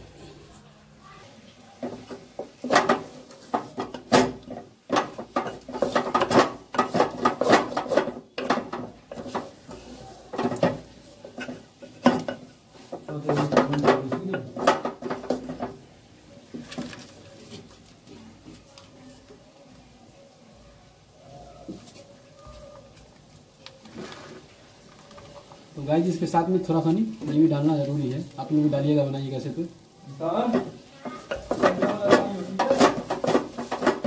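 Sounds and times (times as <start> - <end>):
metal utensil scraping cooking pot: 1.8 - 15.7, 30.4 - 34.0.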